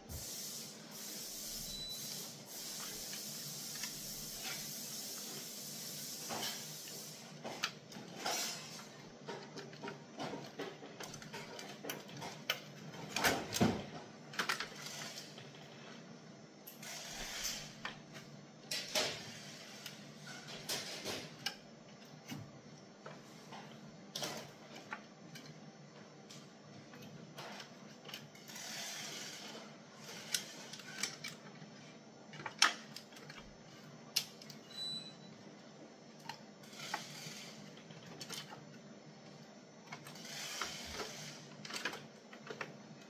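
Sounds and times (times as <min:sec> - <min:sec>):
steady hiss: 0:00.1 - 0:07.4
plastic parts clicking and rattling: 0:07.6 - 0:15.6, 0:26.3 - 0:34.6, 0:36.2 - 0:38.8, 0:39.8 - 0:43.0.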